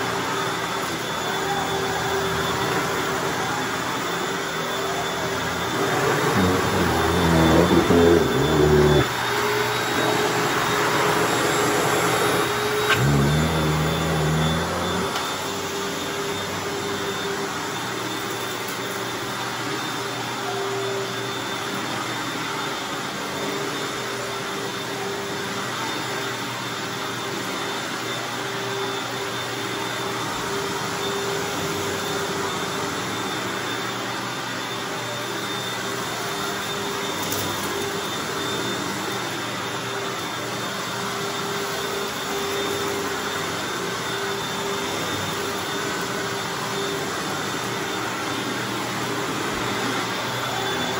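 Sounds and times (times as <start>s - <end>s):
vacuum cleaner on carpet: 0.0s - 50.9s.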